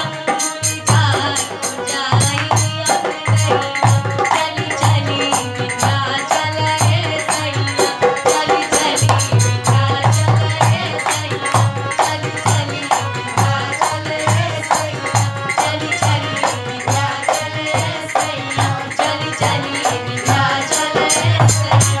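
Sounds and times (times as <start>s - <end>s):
fast backing beat: 0.0s - 22.0s
woman singing into a microphone: 0.0s - 22.0s.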